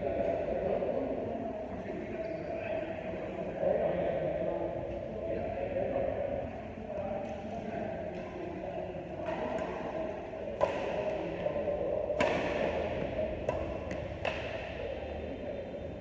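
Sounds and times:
rackets hitting shuttlecock: 9.1 - 15.0.

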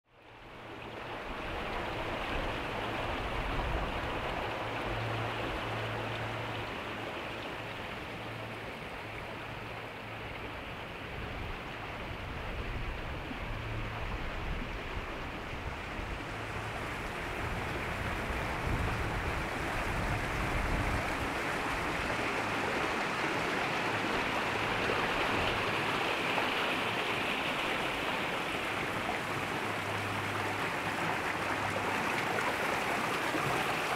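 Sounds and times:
running water rushing: 0.1 - 33.9.

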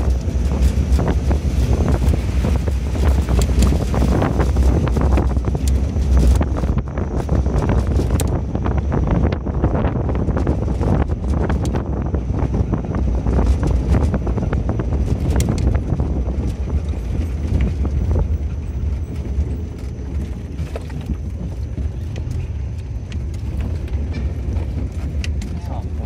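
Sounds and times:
vehicle rumbling on dirt road: 0.0 - 26.0
knocks and rattles from bumps: 10.3 - 26.0.

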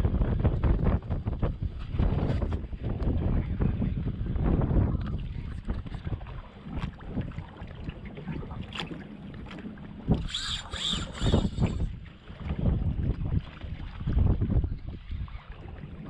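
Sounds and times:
wind buffeting microphone: 0.0 - 16.0
short high-pitched squeals: 10.2 - 11.9.

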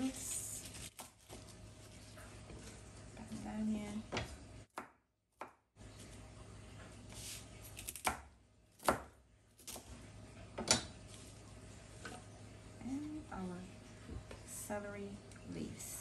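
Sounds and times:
knife chopping on wooden board: 7.9 - 9.8.

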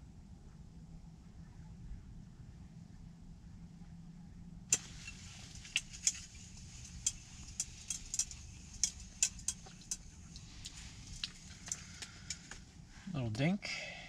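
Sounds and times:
fishing reel clicking: 4.7 - 12.6.

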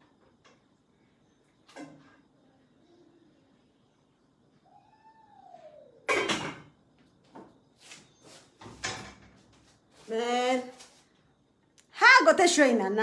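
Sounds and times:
dishes and cupboards clacking: 6.1 - 6.8, 8.6 - 9.4.

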